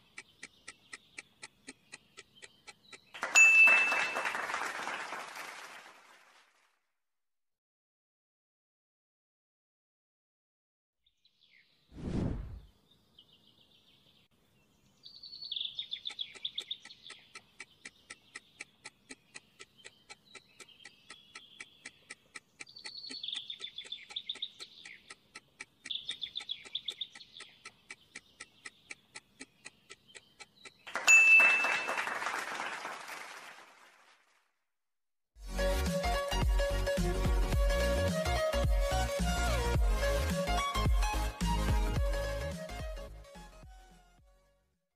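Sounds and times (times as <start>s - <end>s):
clock-like timer ticking: 0.0s - 3.2s, 15.8s - 31.0s
birdsong chirping: 0.0s - 4.3s, 12.6s - 31.9s
music: 35.4s - 44.7s.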